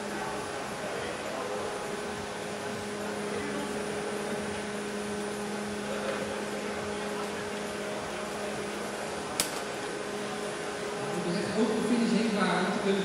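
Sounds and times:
large fans whirring: 0:00.0 - 0:13.0
sharp click: 0:09.4 - 0:09.7.

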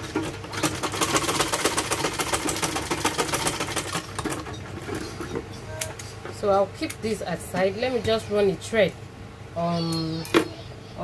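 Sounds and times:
sewing machine stitching: 0:00.0 - 0:05.0.

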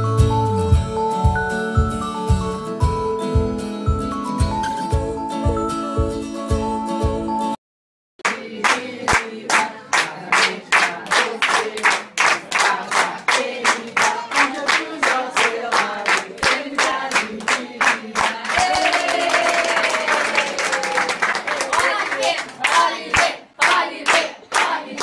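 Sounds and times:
group singing a celebration song: 0:08.2 - 0:19.0, 0:21.8 - 0:25.0
people clapping in rhythm: 0:08.2 - 0:25.0.

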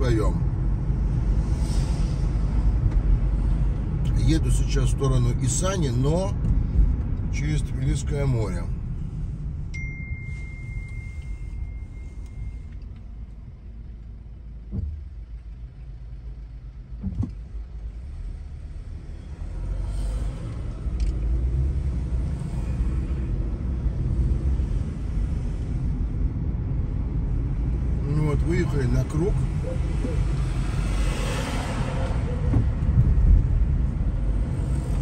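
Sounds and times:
car road and engine rumble: 0:00.0 - 0:35.0
steady high beep: 0:09.7 - 0:12.7.

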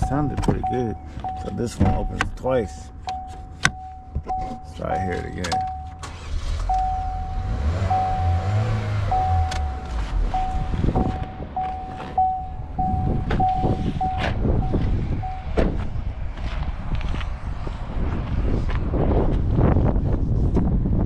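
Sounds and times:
car warning chime dinging: 0:00.0 - 0:15.6.

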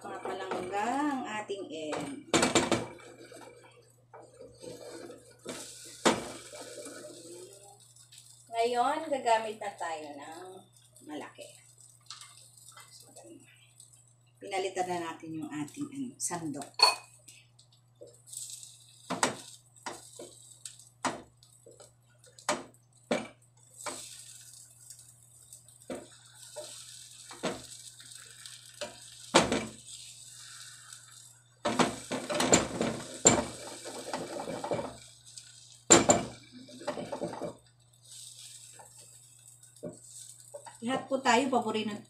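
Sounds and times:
omelette sizzling in oil: 0:00.0 - 0:42.0
spatula scraping frying pan: 0:31.7 - 0:35.5.

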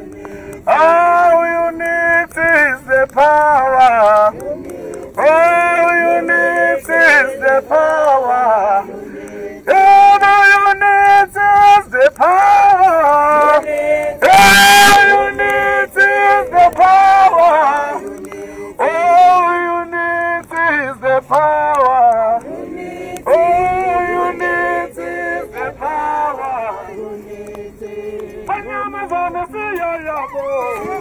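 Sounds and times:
man singing through megaphone: 0:00.0 - 0:31.0
marchers singing along: 0:00.0 - 0:31.0.

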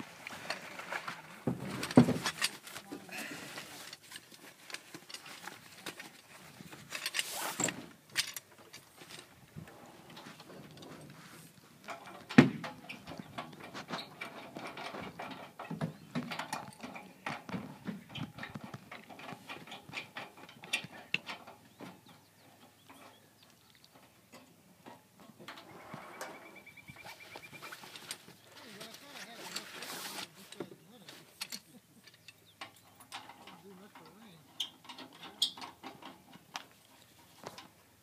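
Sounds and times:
metal tubes clicking and knocking: 0:11.8 - 0:23.2, 0:31.3 - 0:37.8.

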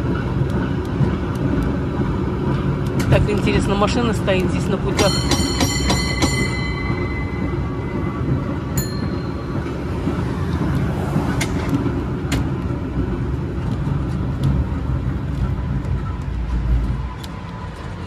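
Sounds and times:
cable car rumbling on rails: 0:00.0 - 0:18.0
high bell ding: 0:05.0 - 0:09.9.

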